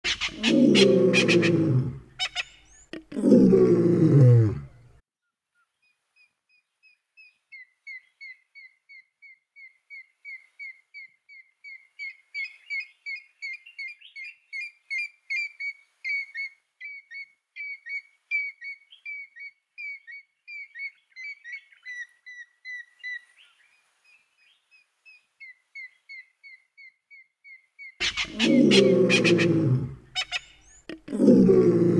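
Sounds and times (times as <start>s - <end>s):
bird piping whistled calls: 7.2s - 23.6s, 30.2s - 30.9s.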